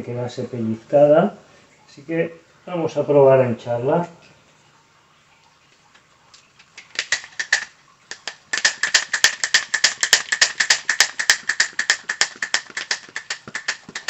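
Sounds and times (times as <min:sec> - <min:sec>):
bicycle hand pump puffing: 0:06.8 - 0:14.0.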